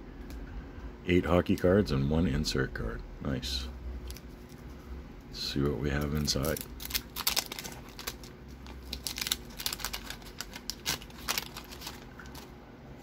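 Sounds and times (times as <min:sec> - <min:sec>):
paper wrapper crinkling: 0:06.0 - 0:12.5.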